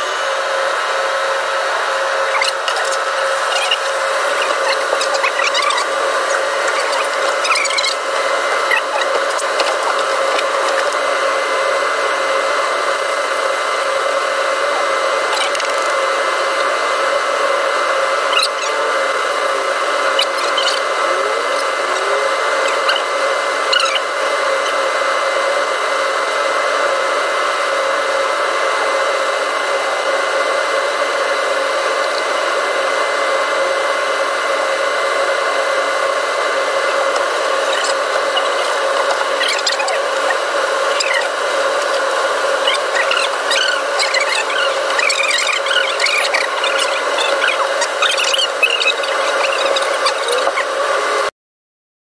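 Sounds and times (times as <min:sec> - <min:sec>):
air conditioner fan whirring: 0:00.0 - 0:51.3.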